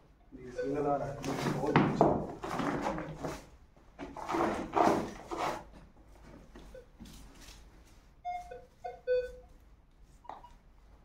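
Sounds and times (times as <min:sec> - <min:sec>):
metal detector beeps: 0:08.2 - 0:09.5.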